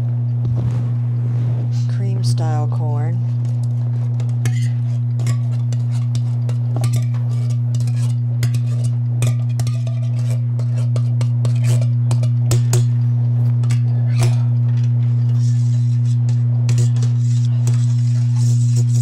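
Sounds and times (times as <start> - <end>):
loud electrical hum: 0.0 - 19.0
spoon scraping a tin can: 3.3 - 12.9, 13.6 - 19.0.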